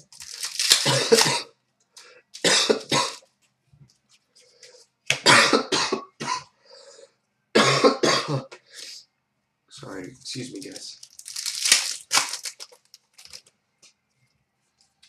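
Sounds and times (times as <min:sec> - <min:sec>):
person coughing: 0:00.8 - 0:01.5, 0:02.4 - 0:03.2, 0:05.2 - 0:06.5, 0:07.6 - 0:08.6.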